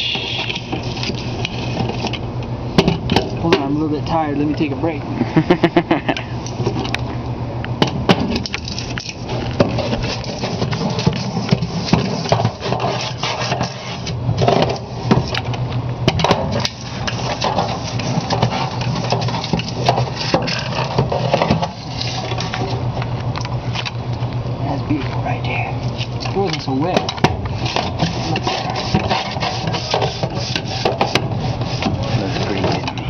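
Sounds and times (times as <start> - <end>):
steady low hum: 0.0 - 33.0
metal scraper scraping sheet metal: 8.4 - 15.4, 16.1 - 22.8, 26.4 - 32.9.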